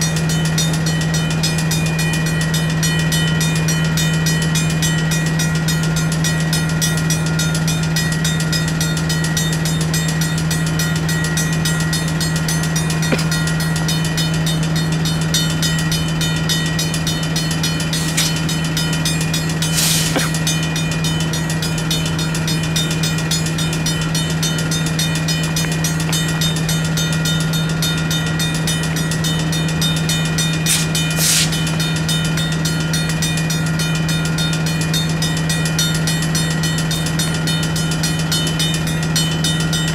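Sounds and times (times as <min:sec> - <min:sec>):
diesel locomotive humming: 0:00.0 - 0:39.9
railroad crossing bells ringing: 0:00.0 - 0:39.9
short air hisses: 0:19.7 - 0:20.4, 0:30.7 - 0:31.6.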